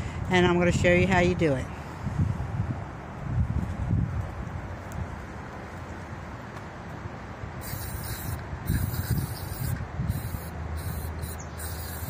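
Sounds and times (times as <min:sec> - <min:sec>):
aerosol can spraying: 0:07.6 - 0:12.0.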